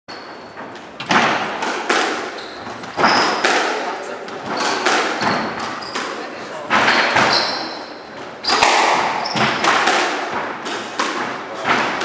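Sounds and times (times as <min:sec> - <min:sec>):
shoe squeaks on wooden floor: 0:00.1 - 0:01.0, 0:02.2 - 0:03.5, 0:04.4 - 0:06.2, 0:06.8 - 0:09.8
squash ball hitting racquets and walls: 0:00.1 - 0:12.0.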